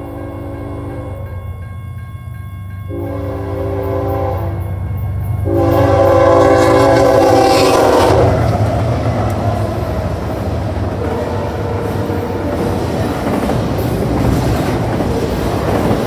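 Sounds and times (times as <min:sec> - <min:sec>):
low rumble of train: 0:00.0 - 0:16.0
locomotive air horn blasts: 0:02.9 - 0:04.8, 0:05.4 - 0:08.5, 0:10.9 - 0:12.6.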